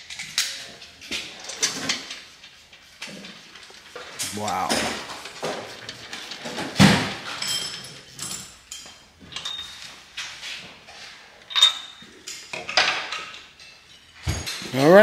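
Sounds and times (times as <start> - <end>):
metal tools clinking and knocking: 7.3 - 9.8, 11.5 - 14.7.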